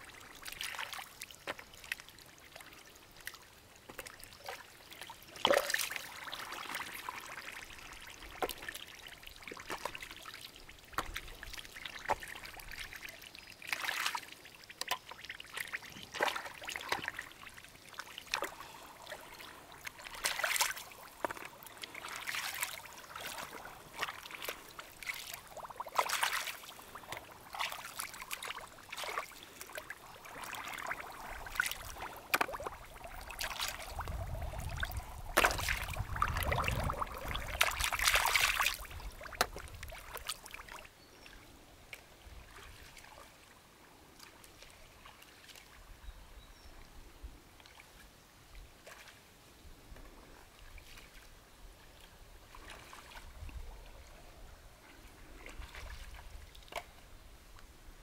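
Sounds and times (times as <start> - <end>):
hands splashing in muddy water: 19.3 - 40.3.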